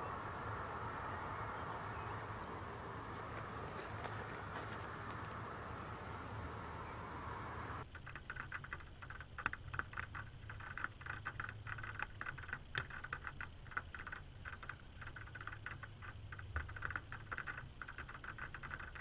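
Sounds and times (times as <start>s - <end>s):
steady low rumble: 0.0s - 7.9s
raindrops tapping on car: 8.2s - 19.0s.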